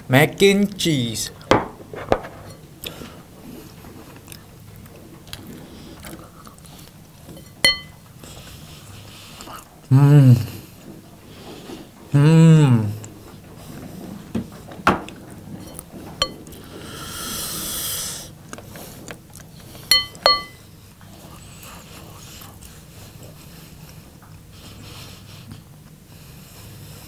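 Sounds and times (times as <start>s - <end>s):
quiet chewing: 2.3s - 9.9s, 18.3s - 27.0s
spoon scraping: 7.3s - 7.9s, 19.9s - 20.6s
spoon clinking against bowl: 7.4s - 8.0s, 15.7s - 16.5s, 19.9s - 20.6s.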